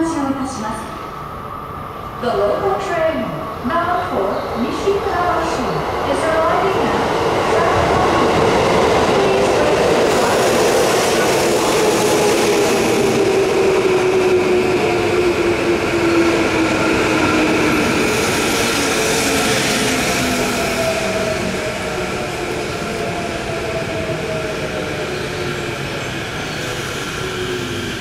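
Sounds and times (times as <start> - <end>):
wheels rumbling on rail: 4.6 - 28.0.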